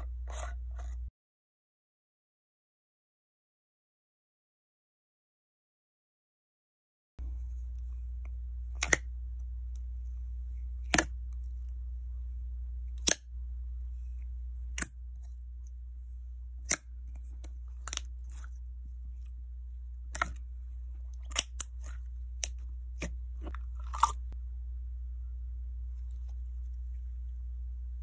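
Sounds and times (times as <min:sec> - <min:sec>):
low hum: 0:00.0 - 0:01.1, 0:07.2 - 0:28.0.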